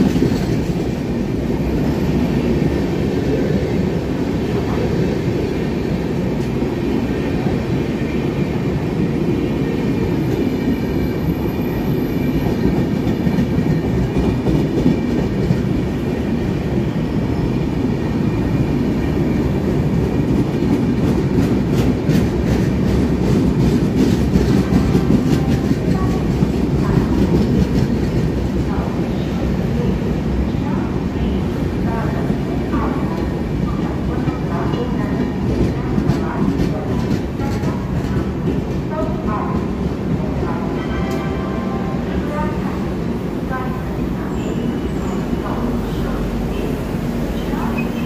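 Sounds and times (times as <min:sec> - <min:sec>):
train wheels rumbling on rail: 0:00.0 - 0:48.0.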